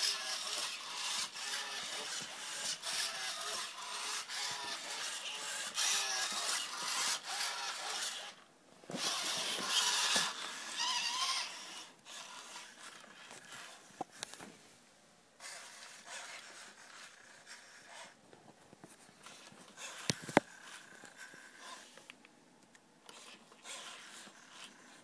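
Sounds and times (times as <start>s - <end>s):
servo motors whirring: 0.0s - 13.8s, 19.3s - 21.9s, 23.1s - 25.0s.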